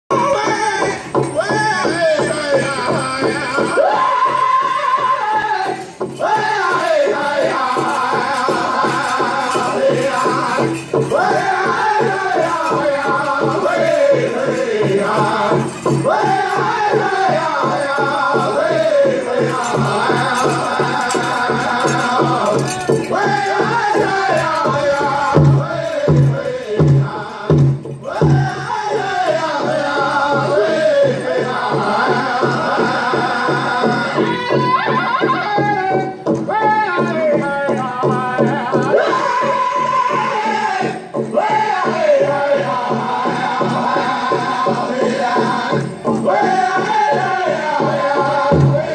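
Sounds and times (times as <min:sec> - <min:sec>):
group singing in high voices: 0:00.1 - 0:48.9
steady drumbeat: 0:00.1 - 0:48.9.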